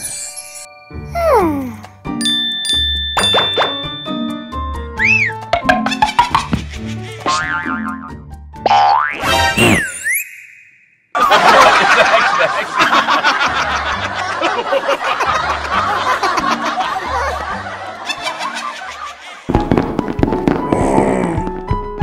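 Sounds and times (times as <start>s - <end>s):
background music: 0.0s - 10.2s, 11.2s - 22.0s
group laughter: 11.2s - 19.6s.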